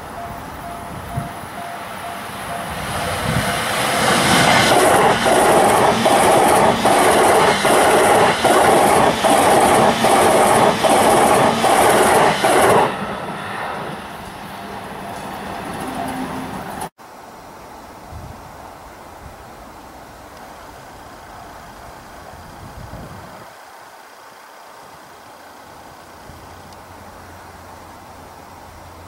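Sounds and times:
electric train passing at speed: 0:00.0 - 0:16.9.

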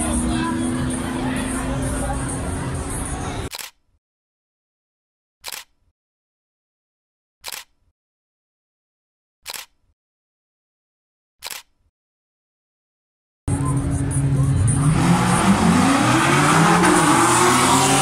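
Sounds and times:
camera shutter clicks: 0:03.5 - 0:03.8, 0:05.4 - 0:05.7, 0:07.4 - 0:07.7, 0:09.5 - 0:09.8, 0:11.4 - 0:11.7.

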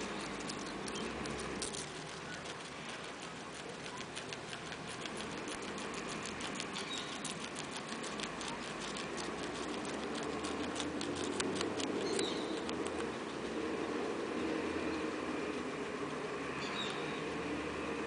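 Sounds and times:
guinea pig chewing leaf: 0:00.0 - 0:18.0
steady background hiss: 0:09.0 - 0:18.0.

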